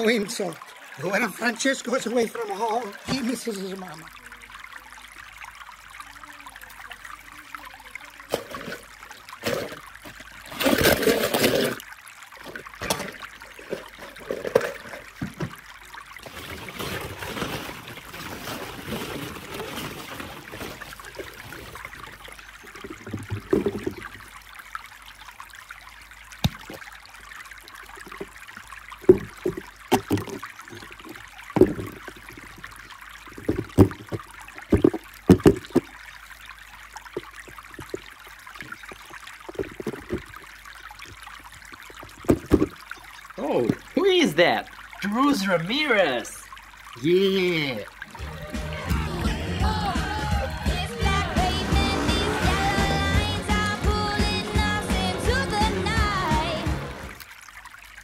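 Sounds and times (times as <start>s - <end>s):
plastic balls knocking and clacking: 22.8s - 24.1s, 29.0s - 32.6s, 33.2s - 36.0s, 37.1s - 40.4s, 41.8s - 42.8s.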